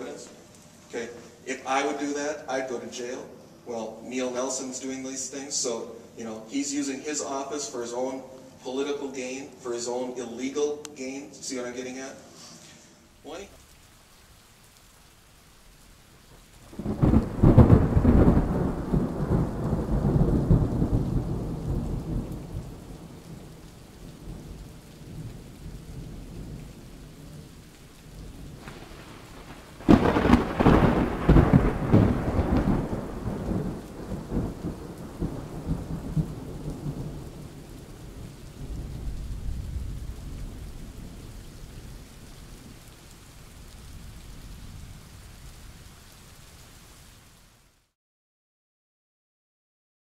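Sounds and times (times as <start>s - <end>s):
steady rain: 0.0s - 48.0s
thunder rumbling: 16.2s - 46.2s.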